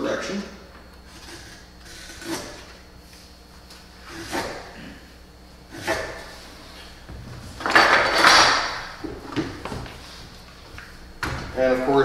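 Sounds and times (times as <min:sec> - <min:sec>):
knife scoring wood: 0:01.1 - 0:02.7, 0:04.0 - 0:04.7, 0:05.7 - 0:06.4.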